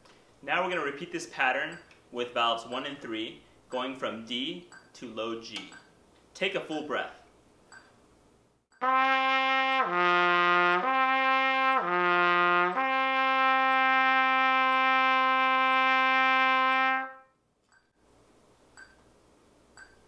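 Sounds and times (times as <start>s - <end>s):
trumpet playing lip slurs: 8.8s - 17.2s.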